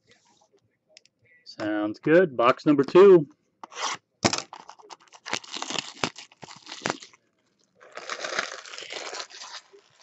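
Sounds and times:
crinkling and tearing: 0:03.7 - 0:10.0.

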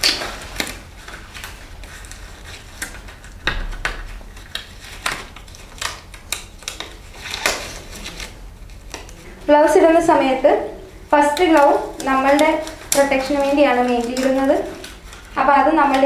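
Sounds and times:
disposable gloves snapping: 0:02.8 - 0:07.9, 0:11.3 - 0:16.0.

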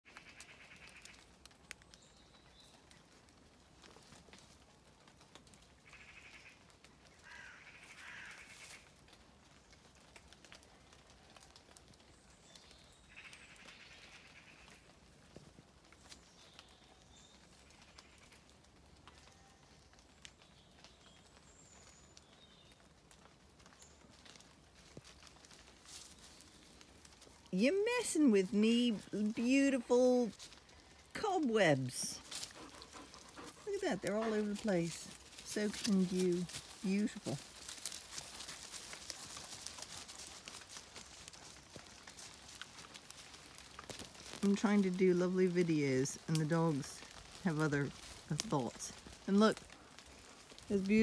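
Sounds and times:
faint animal calls: 0:00.1 - 0:01.4, 0:05.7 - 0:09.0, 0:13.0 - 0:15.1, 0:16.6 - 0:20.1, 0:30.3 - 0:44.6.

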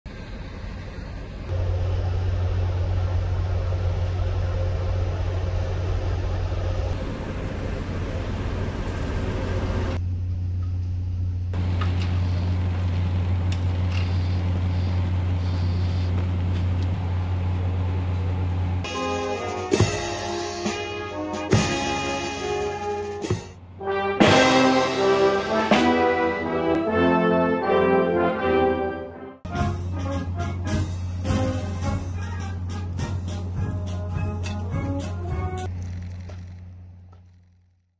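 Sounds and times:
diesel train engine humming: 0:00.1 - 0:37.8.

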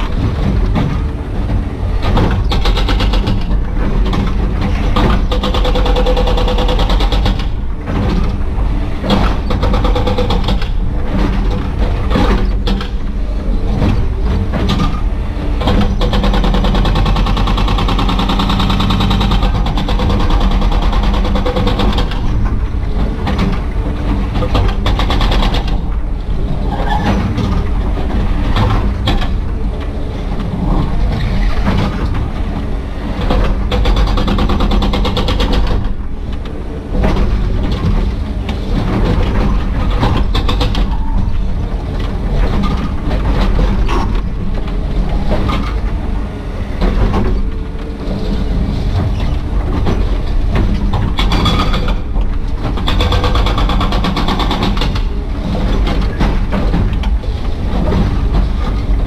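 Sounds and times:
diesel engine under load: 0:00.0 - 0:59.0
hydraulic breaker hammering concrete: 0:02.0 - 0:08.3, 0:09.0 - 0:13.0, 0:14.5 - 0:22.4, 0:52.7 - 0:59.0.

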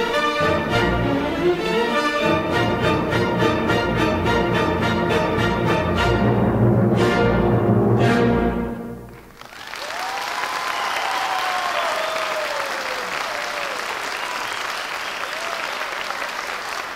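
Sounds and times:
orchestral music: 0:00.0 - 0:09.4
audience applause: 0:09.1 - 0:16.9
drawn-out cheers: 0:09.5 - 0:16.9.

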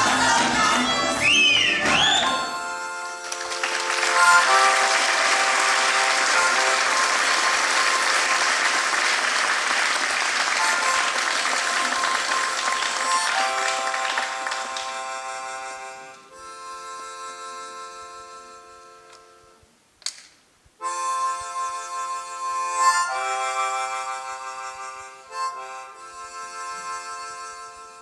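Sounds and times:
audience applauding: 0:00.0 - 0:15.3
folk dance music: 0:00.0 - 0:19.7, 0:20.8 - 0:28.0.

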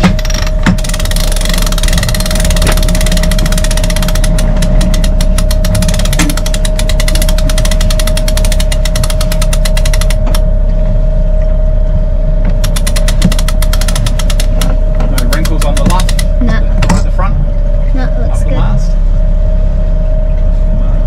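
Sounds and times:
winch ratchet clicking: 0:00.0 - 0:10.4, 0:12.6 - 0:16.4
engine drone: 0:00.0 - 0:21.0.

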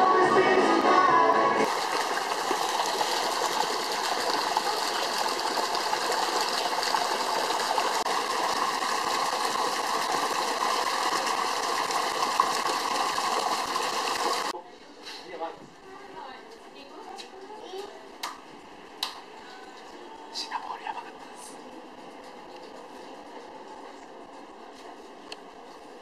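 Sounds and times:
water jets pouring into pool: 0:01.6 - 0:14.6.

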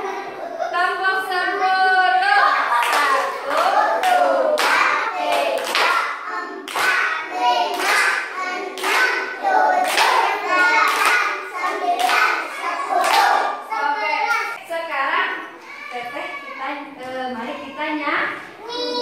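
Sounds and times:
children and woman chanting: 0:00.9 - 0:14.6
hands clapping in rhythm: 0:02.8 - 0:13.5.

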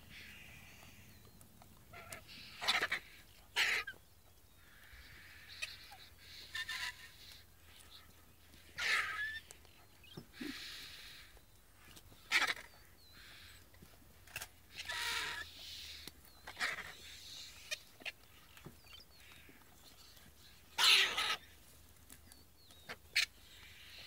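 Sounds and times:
vultures hissing and rasping: 0:01.9 - 0:04.0, 0:04.6 - 0:21.6.

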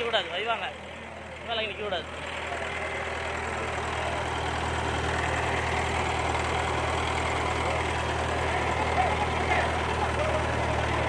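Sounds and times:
crane diesel engine humming: 0:00.0 - 0:11.0.

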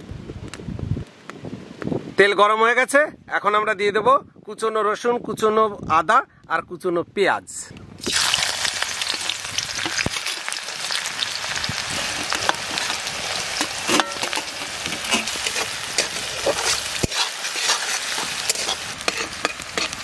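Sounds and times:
food sizzling in hot oil: 0:08.0 - 0:20.0
spatula stirring in metal pan: 0:12.0 - 0:20.0.

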